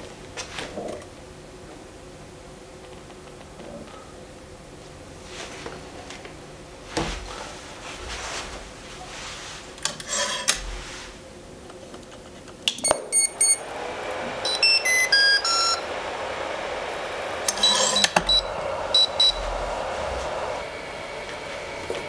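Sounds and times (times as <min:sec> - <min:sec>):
electronic beeps: 0:12.8 - 0:22.0
falling electronic notes: 0:12.9 - 0:22.0
steady whine: 0:12.9 - 0:22.0.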